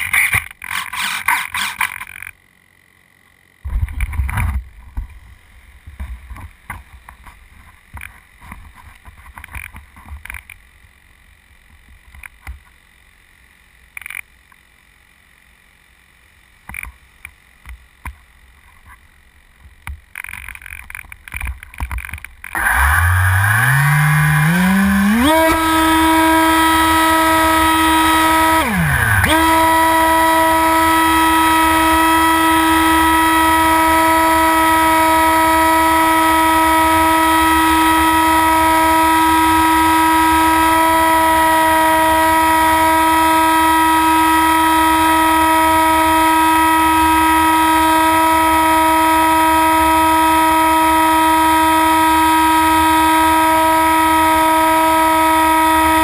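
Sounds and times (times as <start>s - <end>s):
model airplane motor whining: 0.0s - 2.4s, 19.8s - 56.0s.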